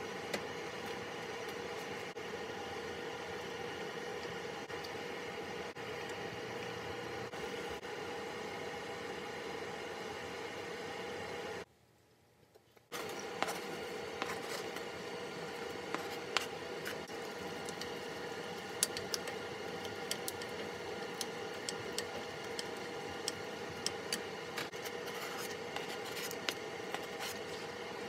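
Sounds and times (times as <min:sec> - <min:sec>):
onion and chili sizzling: 0:12.9 - 0:28.0
wooden spoon scraping pot: 0:13.0 - 0:28.0.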